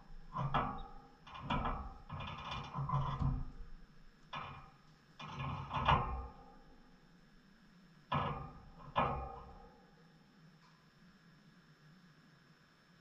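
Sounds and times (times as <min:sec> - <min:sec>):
birds rustling in a cage: 0:00.0 - 0:03.7, 0:04.3 - 0:06.6.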